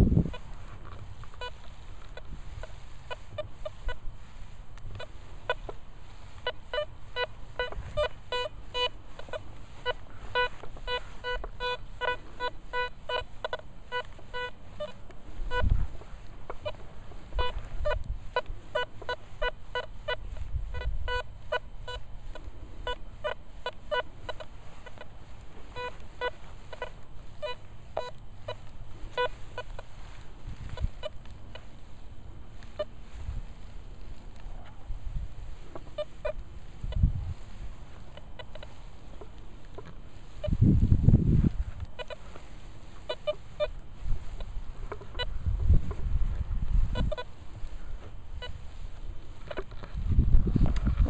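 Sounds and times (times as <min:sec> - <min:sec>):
metal detector short beeps: 0:01.3 - 0:04.0, 0:06.4 - 0:15.8, 0:16.4 - 0:22.1, 0:22.8 - 0:25.1, 0:25.7 - 0:29.9, 0:43.0 - 0:45.4, 0:46.9 - 0:47.4, 0:48.3 - 0:48.8.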